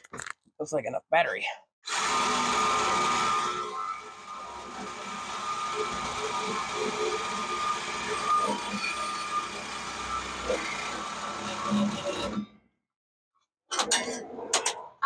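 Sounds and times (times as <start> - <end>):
power cutter cutting metal pipe: 1.9 - 12.5.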